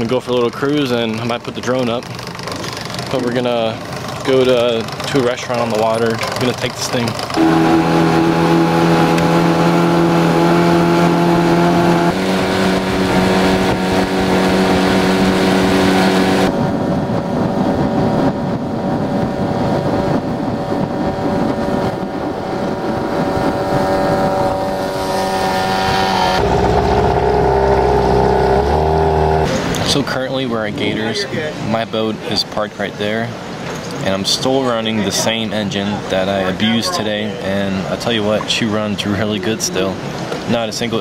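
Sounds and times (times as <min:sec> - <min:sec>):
wind: 0:00.0 - 0:41.0
outboard motor running: 0:00.6 - 0:30.1
water rushing: 0:02.2 - 0:16.6, 0:21.4 - 0:41.0.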